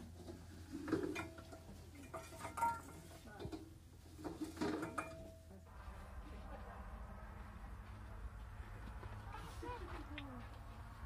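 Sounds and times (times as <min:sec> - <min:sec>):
metal kitchenware clanking: 0:00.0 - 0:05.6.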